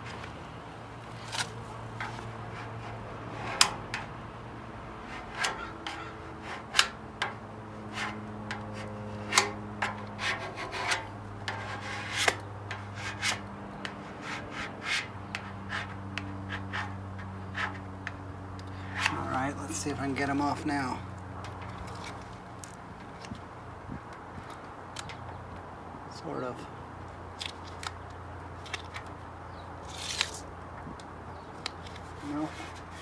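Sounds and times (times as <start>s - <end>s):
squeegee rubbing wet decal: 10.1s - 17.8s.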